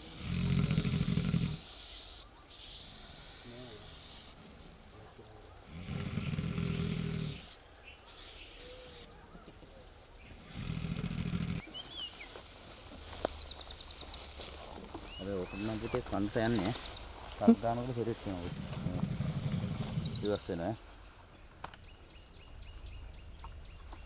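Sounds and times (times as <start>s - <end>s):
elephant low rumbles: 5.6s - 7.4s, 10.2s - 20.6s.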